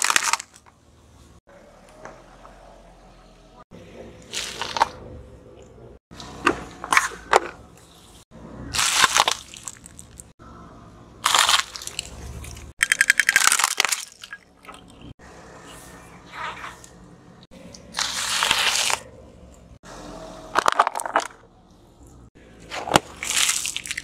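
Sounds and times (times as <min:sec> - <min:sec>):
tyre crushing objects: 0:22.6 - 0:24.0.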